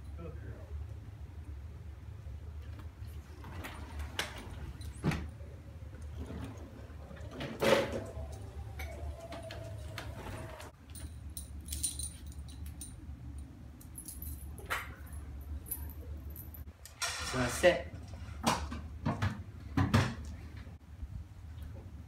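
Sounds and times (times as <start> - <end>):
sliding glass door opening: 3.0 - 10.8, 16.9 - 17.6
wheelchair rolling over track: 3.1 - 5.3, 5.9 - 10.8
dog collar tags jingling: 10.9 - 16.6.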